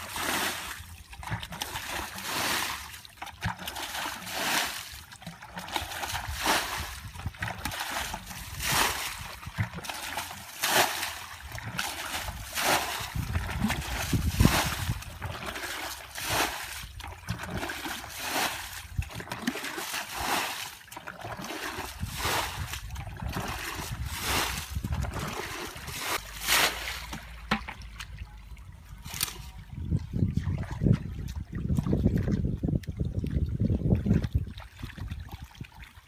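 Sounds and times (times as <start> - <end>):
bucket splashing water: 0.0 - 36.0.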